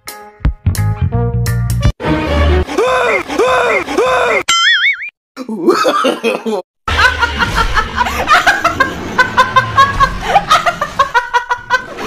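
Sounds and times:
person laughing: 2.7s - 4.4s, 5.4s - 12.0s.

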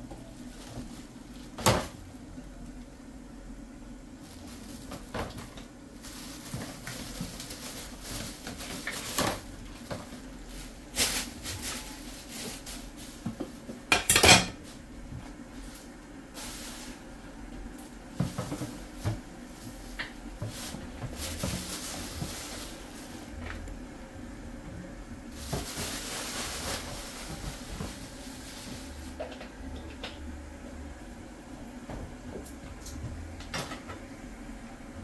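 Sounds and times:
steady low hum: 0.0s - 35.0s
cooking pots and utensils clattering: 13.9s - 14.7s.

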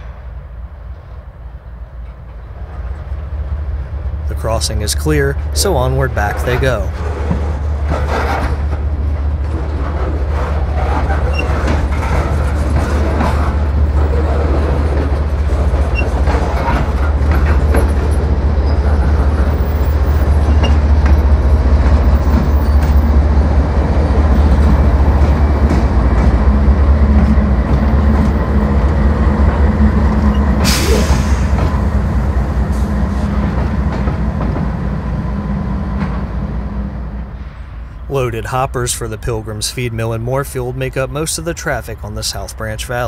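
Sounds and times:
diesel locomotive engine rumble: 0.0s - 43.0s
wheels rumbling on rail: 0.0s - 43.0s
brief air hiss: 30.6s - 31.5s.

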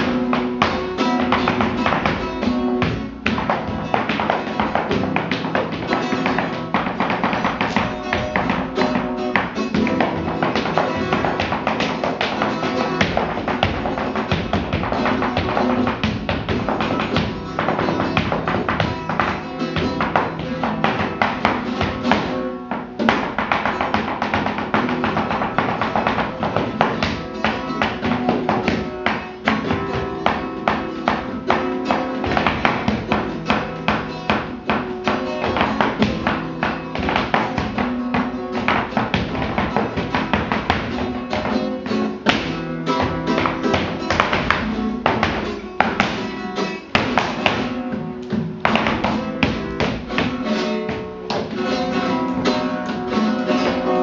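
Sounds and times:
flamenco guitar music: 0.0s - 54.0s
heeled shoes tapping floor: 0.0s - 54.0s.

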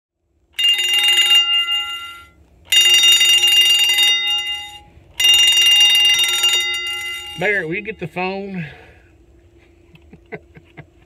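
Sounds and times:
mechanical alarm bell ringing: 0.6s - 8.2s.

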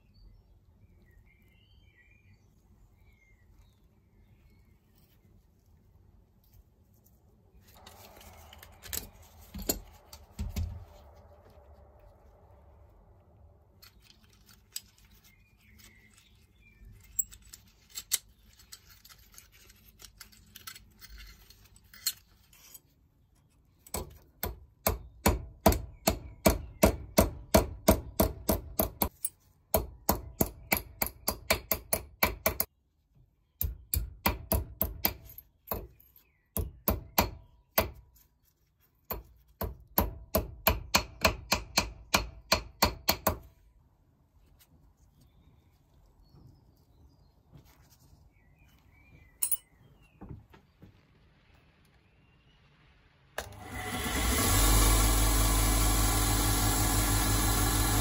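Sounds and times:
handling clicks and scrapes: 4.8s - 12.2s, 13.7s - 24.2s.

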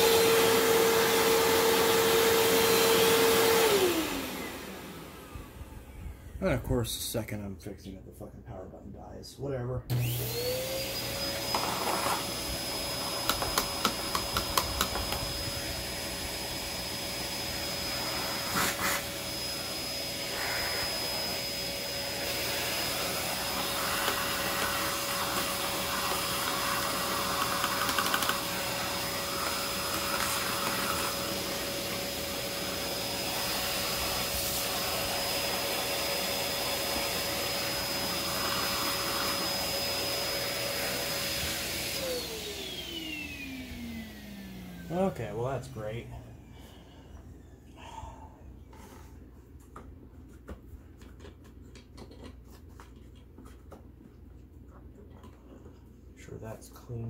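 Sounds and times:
vacuum motor whining: 0.0s - 6.4s, 9.9s - 46.5s.

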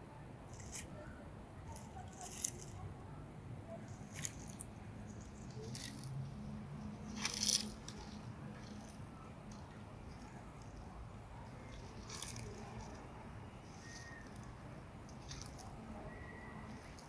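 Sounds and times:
dry leaves crunching: 7.1s - 8.9s.

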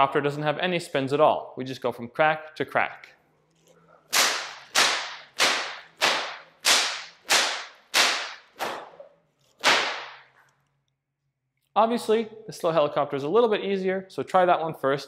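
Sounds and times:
whip cracking: 4.1s - 9.0s, 9.6s - 10.3s.

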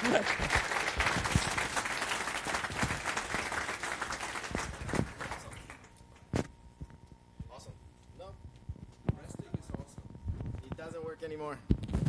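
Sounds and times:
audience applauding: 0.0s - 5.9s.

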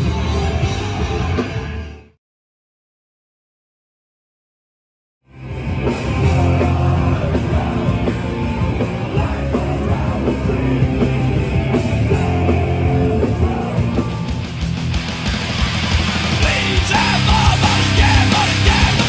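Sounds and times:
punk band playing: 0.0s - 2.1s, 5.3s - 19.0s
shouted vocals: 16.4s - 19.0s.

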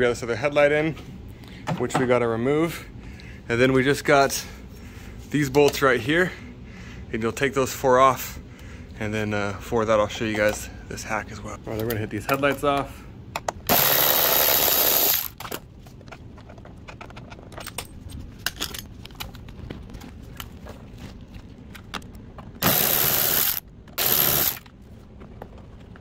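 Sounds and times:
cordless electric ratchet: 13.7s - 15.4s, 22.6s - 24.7s.

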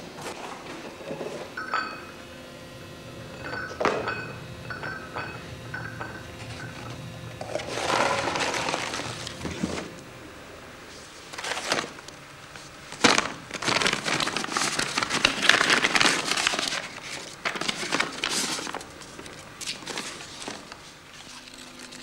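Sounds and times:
paper rustling and crinkling: 6.4s - 10.0s, 10.9s - 22.0s
sharp paper crackle: 7.6s - 9.4s, 11.3s - 12.0s, 12.9s - 22.0s.

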